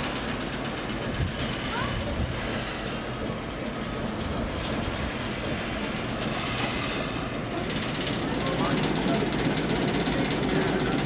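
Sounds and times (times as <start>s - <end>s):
locomotive rumble: 0.0s - 11.0s
steel wheels squealing on rail: 0.9s - 8.0s.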